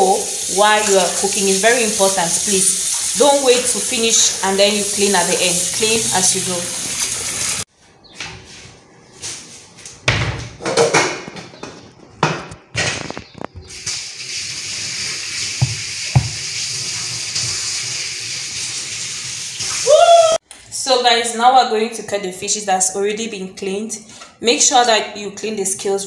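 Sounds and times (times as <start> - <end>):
kitchen items knocking: 15.6 - 16.4.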